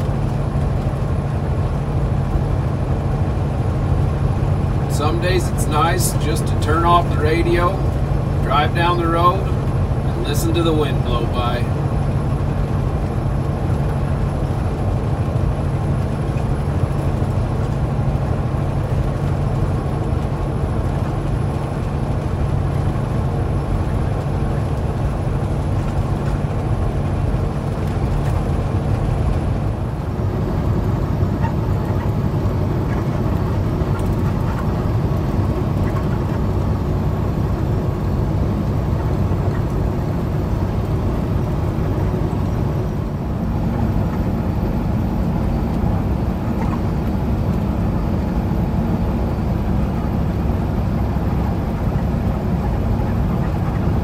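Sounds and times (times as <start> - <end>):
wind rushing past truck cab: 0.0 - 6.7, 11.7 - 54.0
truck engine and tyres droning: 0.0 - 54.0.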